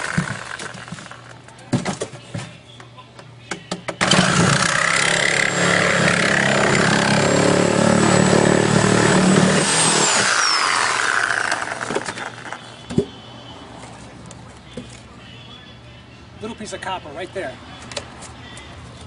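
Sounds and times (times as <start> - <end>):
power tool running: 0.0 - 1.3, 4.0 - 12.6.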